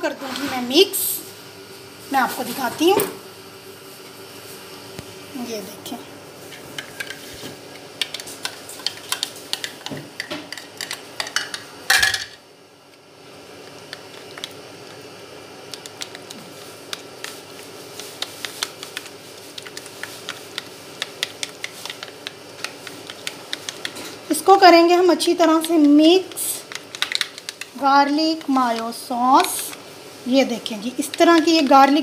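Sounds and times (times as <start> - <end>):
plastic spoon stirring mayonnaise: 15.7 - 24.0.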